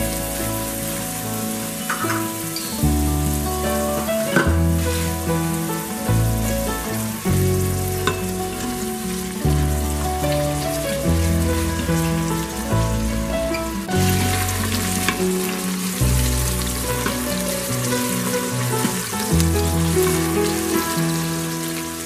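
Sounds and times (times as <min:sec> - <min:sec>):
background music with held chords: 0:00.0 - 0:22.0
onion sizzling in hot oil: 0:00.0 - 0:22.0
spatula stirring onions: 0:04.4 - 0:06.2.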